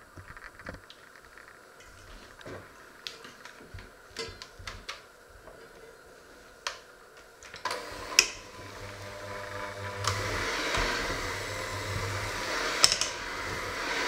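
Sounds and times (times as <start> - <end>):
hand mixer motor running: 7.7 - 14.0
hand mixer clicks and knocks: 12.7 - 13.3.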